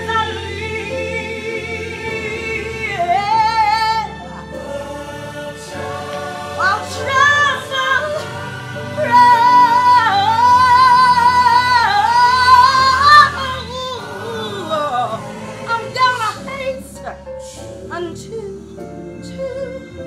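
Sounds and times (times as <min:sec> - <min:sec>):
backing music: 0:00.0 - 0:20.0
woman singing: 0:09.0 - 0:17.2.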